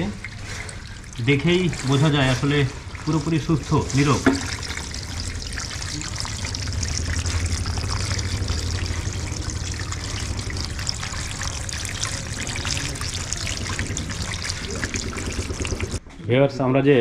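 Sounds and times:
low steady hum: 0:00.0 - 0:16.0
water churning and trickling: 0:00.0 - 0:16.0.

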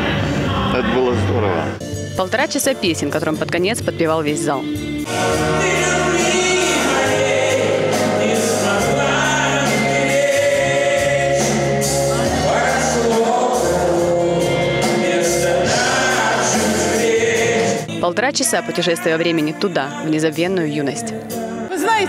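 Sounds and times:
pop band playing live: 0:03.6 - 0:19.5
crowd singing along: 0:04.0 - 0:22.0.

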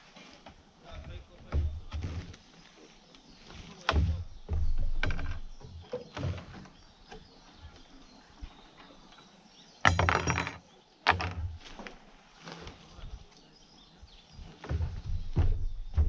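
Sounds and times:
knocks and clatter on wooden deck: 0:00.4 - 0:02.4, 0:03.8 - 0:07.7, 0:09.8 - 0:11.9, 0:14.4 - 0:16.0
tent fabric rustling: 0:11.6 - 0:13.3.

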